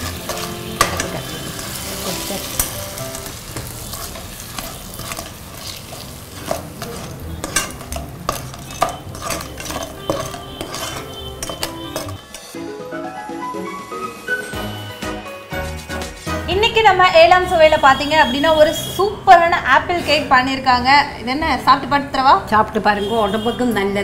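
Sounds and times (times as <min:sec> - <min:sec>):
light frying sizzle: 0:00.0 - 0:12.6
spatula scraping pan: 0:00.0 - 0:12.6.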